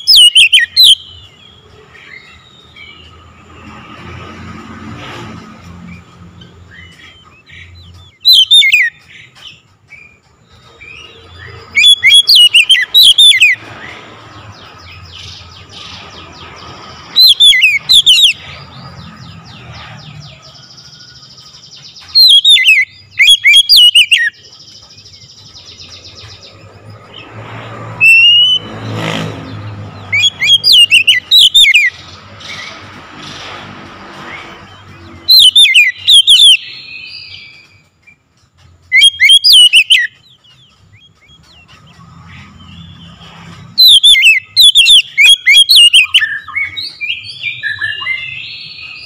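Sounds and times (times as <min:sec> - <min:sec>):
bird whistling calls: 0:00.0 - 0:01.2, 0:06.8 - 0:09.3, 0:10.9 - 0:13.6, 0:17.2 - 0:18.4, 0:22.1 - 0:24.4, 0:28.0 - 0:28.7, 0:30.0 - 0:32.0, 0:35.2 - 0:37.8, 0:38.9 - 0:40.7, 0:43.8 - 0:49.0.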